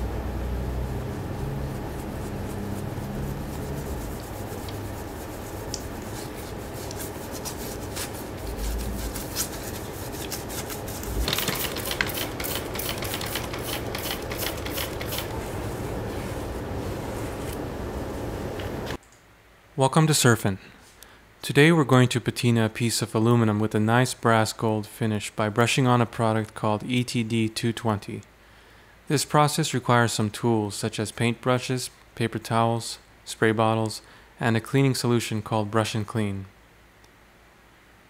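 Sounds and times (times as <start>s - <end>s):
wet brush scrubbing metal plate: 0.8s - 17.4s.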